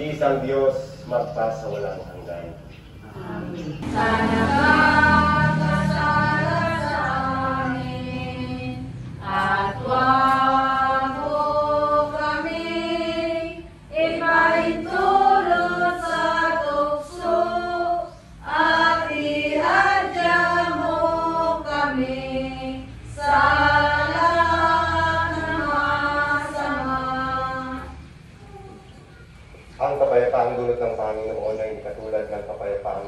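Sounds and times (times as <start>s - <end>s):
congregation singing: 0.0s - 28.2s.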